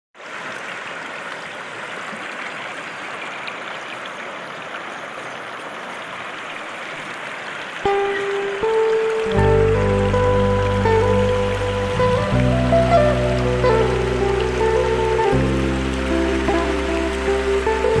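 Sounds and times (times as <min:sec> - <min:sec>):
river rushing over stones: 0:00.2 - 0:18.0
music with held notes: 0:07.9 - 0:18.0.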